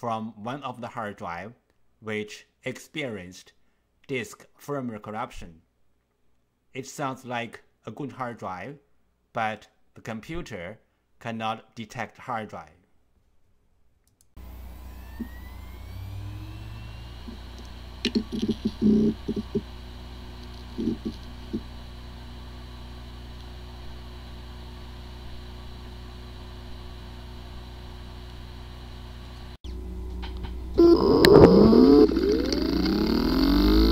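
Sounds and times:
hard drive platters whirring: 0:14.4 - 0:33.9
hard drive spinning up: 0:14.4 - 0:33.9
hard drive knocks and ticks: 0:18.1 - 0:19.7.

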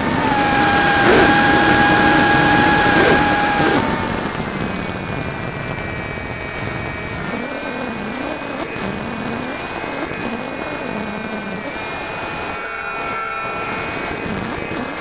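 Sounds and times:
wind rush: 0:00.0 - 0:07.0
electric motor propeller whining: 0:00.0 - 0:15.0.

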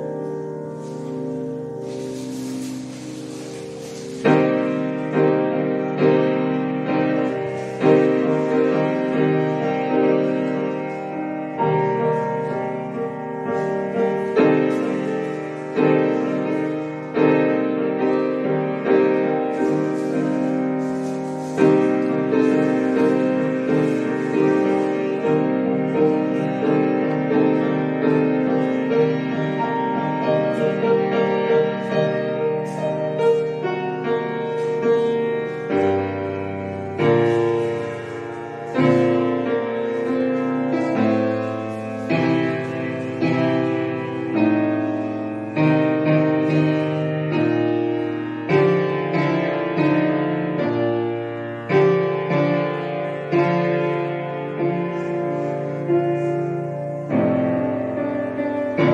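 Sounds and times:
piano chords ringing: 0:00.0 - 0:58.9.

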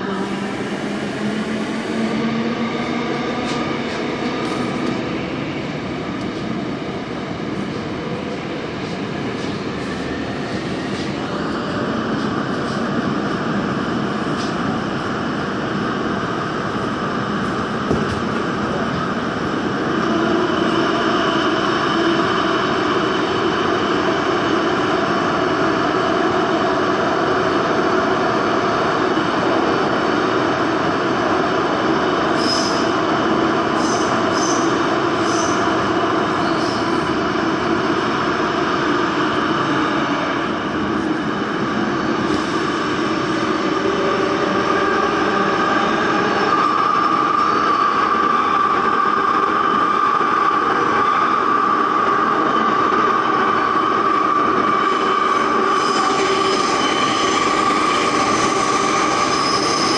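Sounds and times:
train wheels rumbling on rail: 0:00.0 - 0:59.9
high-pitched wheel squeals: 0:55.0 - 0:59.9.

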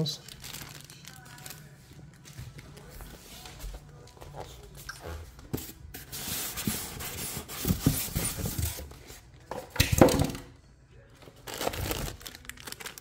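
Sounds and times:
styrofoam and cardboard scraping: 0:06.0 - 0:08.9.

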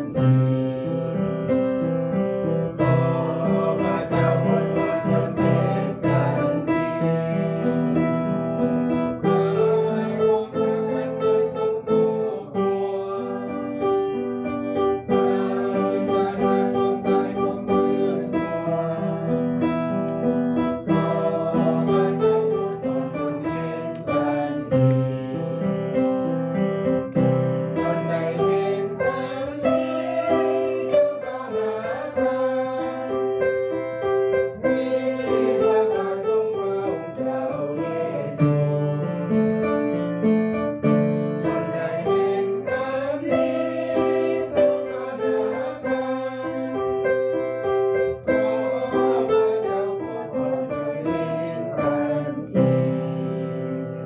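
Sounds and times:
congregation singing a hymn: 0:00.0 - 0:01.2, 0:02.4 - 0:25.8, 0:26.9 - 0:39.3, 0:40.7 - 0:54.0
electronic keyboard piano: 0:00.0 - 0:54.0.

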